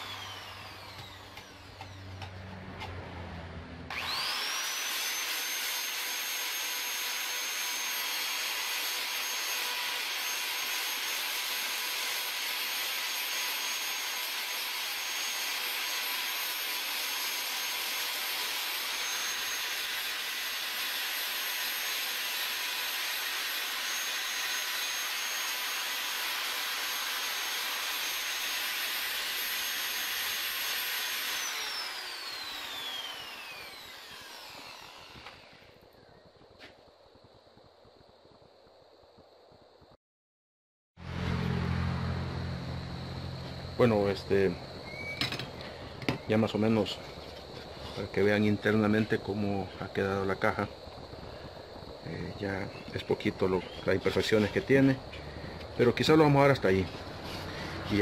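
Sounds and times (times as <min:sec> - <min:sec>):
electric drill sanding wood: 0:00.0 - 0:03.0, 0:03.9 - 0:35.9, 0:43.4 - 0:58.0.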